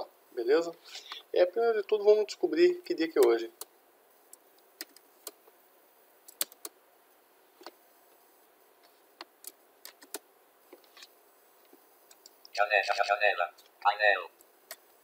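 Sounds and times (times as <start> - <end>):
faint hiss: 0.0 - 15.0
keyboard clicks: 6.3 - 6.7, 9.4 - 10.2.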